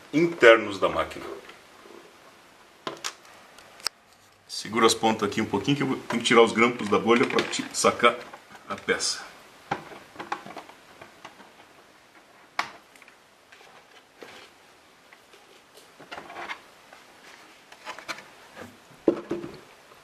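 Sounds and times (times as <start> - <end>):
plastic body clattering: 6.0 - 8.4.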